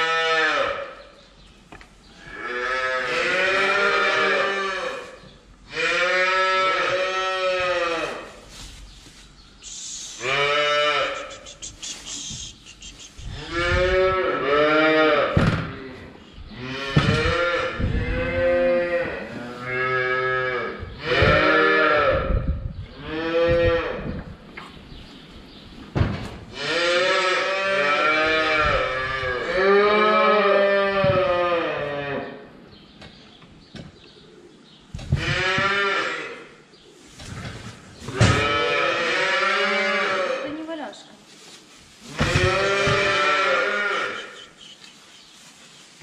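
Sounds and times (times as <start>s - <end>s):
cows mooing: 2.3s - 5.1s, 10.2s - 11.7s.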